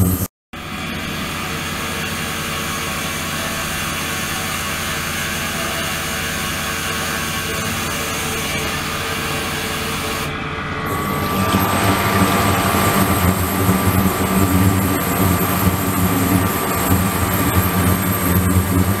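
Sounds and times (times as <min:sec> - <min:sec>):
steady machine hum: 0:00.0 - 0:19.0
thin high tone: 0:10.9 - 0:19.0.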